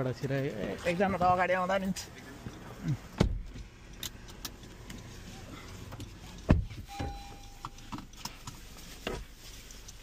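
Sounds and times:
electronic beep: 6.9s - 7.9s.

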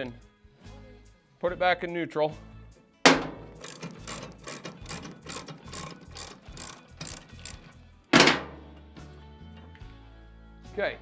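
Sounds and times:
loud clunk: 3.1s - 4.0s, 8.2s - 8.7s
socket ratchet clicking: 3.3s - 8.3s.

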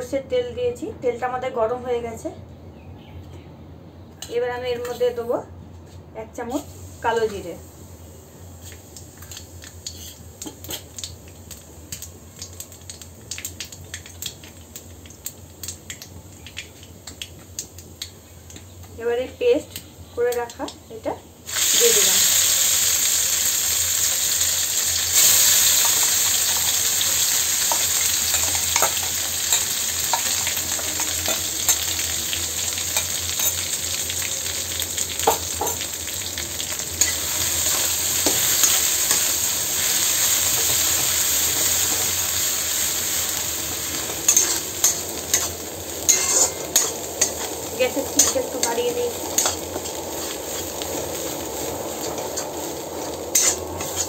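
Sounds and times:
paste sizzling in hot oil: 6.6s - 18.6s, 21.4s - 54.0s
spatula stirring in pan: 43.9s - 54.0s
spatula knocking and scraping pan: 46.1s - 50.4s.

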